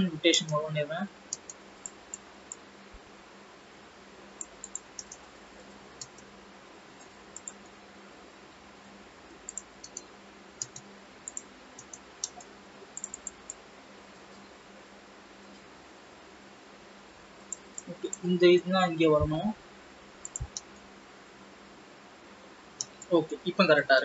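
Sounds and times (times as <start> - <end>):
low steady hum and hiss: 0.0 - 24.0
mouse and keyboard clicks: 4.4 - 5.3, 9.5 - 13.6, 20.2 - 20.7.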